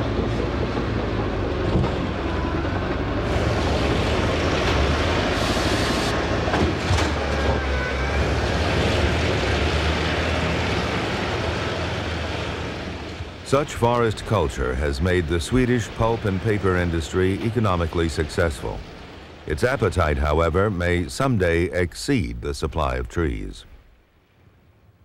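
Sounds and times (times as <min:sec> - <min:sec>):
diesel engine rumble: 0:00.0 - 0:23.6.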